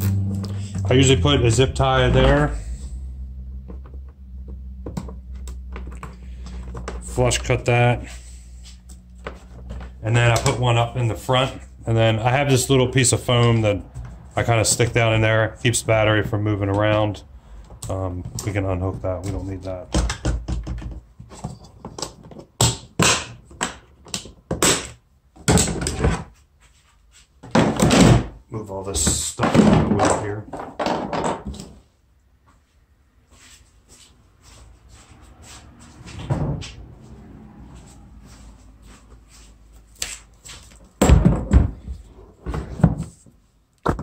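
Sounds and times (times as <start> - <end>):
scraping rustles: 32.7 - 41.0.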